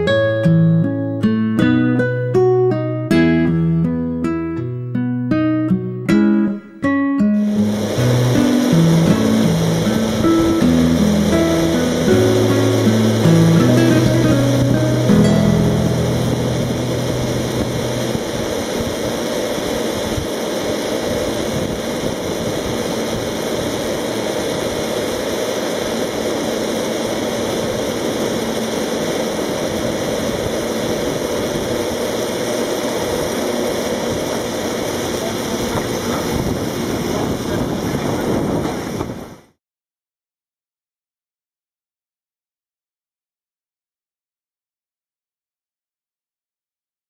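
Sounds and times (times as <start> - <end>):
tramcar rushing noise: 7.4 - 39.4.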